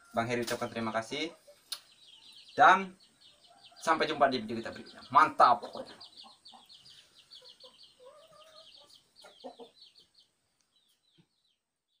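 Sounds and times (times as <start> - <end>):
faint high bird chirps: 0.0 - 12.0.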